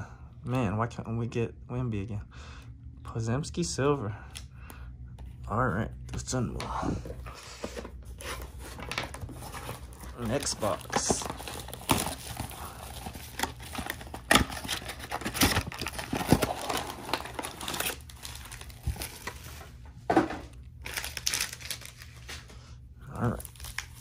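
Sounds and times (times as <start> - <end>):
foil wrappers crinkling: 8.6 - 19.7, 20.8 - 22.5, 23.1 - 24.0.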